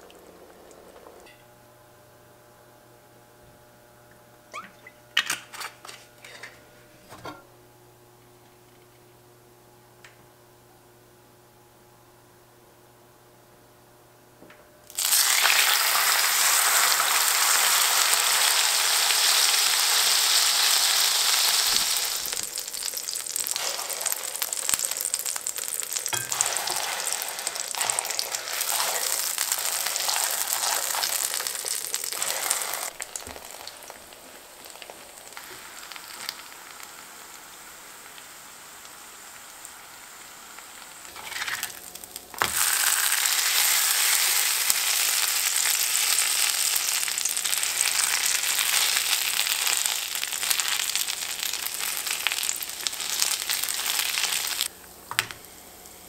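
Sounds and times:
food sizzling in oil: 0:14.9 - 0:54.7.

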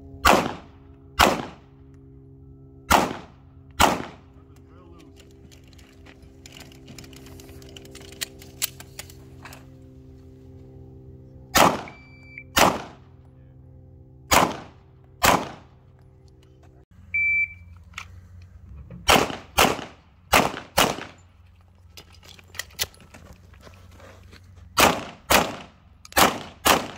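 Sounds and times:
handgun shots: 0:00.2 - 0:01.6, 0:02.9 - 0:04.2, 0:11.6 - 0:12.0, 0:12.6 - 0:13.0, 0:14.3 - 0:15.6, 0:19.1 - 0:21.2, 0:24.8 - 0:26.9
electronic shot timer beep: 0:11.9 - 0:12.5, 0:17.2 - 0:17.6.

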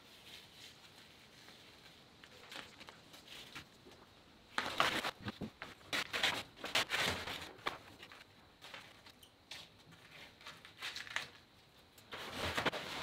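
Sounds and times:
paper crinkling and tearing: 0:04.6 - 0:08.9, 0:12.1 - 0:13.0
tape peeling crackles: 0:10.4 - 0:11.4.

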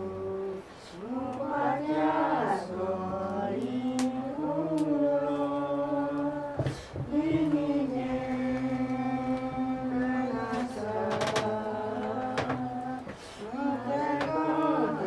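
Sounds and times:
man breathing: 0:13.2 - 0:13.5.

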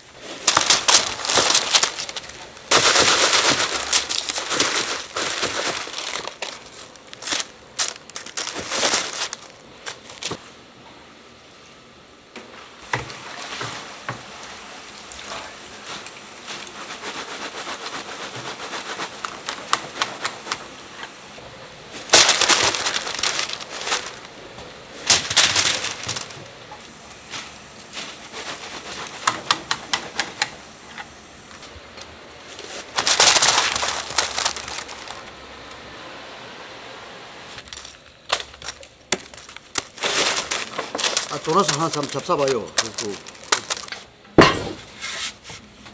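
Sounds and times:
donuts clattering onto trays: 0:22.0 - 0:24.3, 0:25.0 - 0:26.5, 0:37.6 - 0:45.0.

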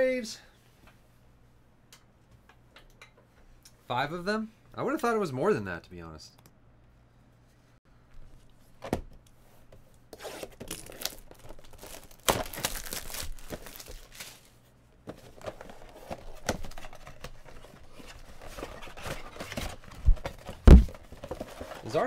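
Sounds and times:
cardboard flaps rustling: 0:10.5 - 0:14.5, 0:15.1 - 0:22.0
cellophane crinkling and tearing: 0:10.5 - 0:14.6.

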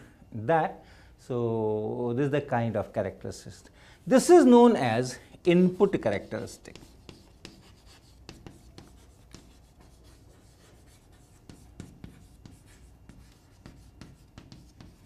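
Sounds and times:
chalk tapping and scratching: 0:05.6 - 0:15.0.

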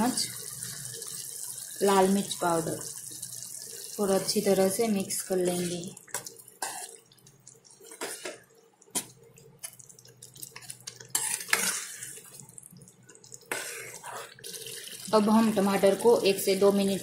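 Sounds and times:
spoon scraping pan: 0:10.5 - 0:12.3.

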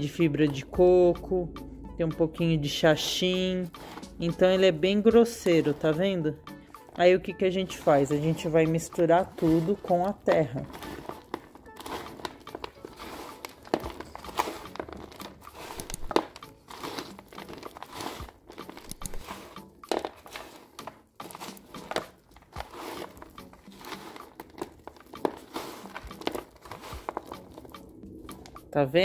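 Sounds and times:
hands stirring soil crunching: 0:02.6 - 0:29.0.

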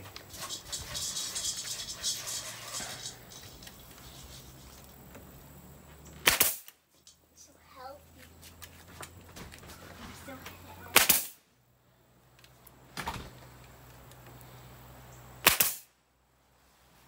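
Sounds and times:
nail gun firing into wood: 0:06.2 - 0:06.8, 0:10.9 - 0:11.4, 0:15.4 - 0:15.9.

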